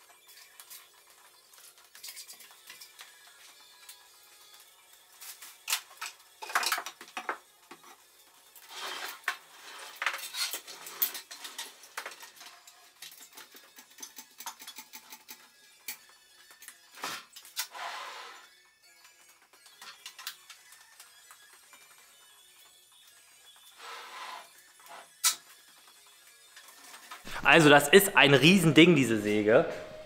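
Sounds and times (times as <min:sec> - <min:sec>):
metal parts clinking and clattering: 0:00.3 - 0:03.0, 0:05.6 - 0:07.3, 0:08.8 - 0:16.7.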